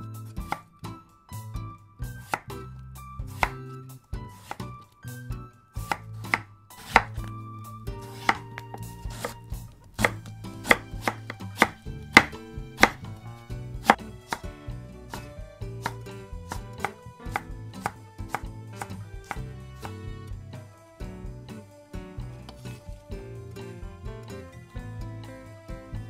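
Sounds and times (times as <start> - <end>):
knife chopping on cutting board: 2.1 - 2.6, 3.2 - 3.7, 4.3 - 4.7, 5.8 - 14.5, 15.1 - 20.0.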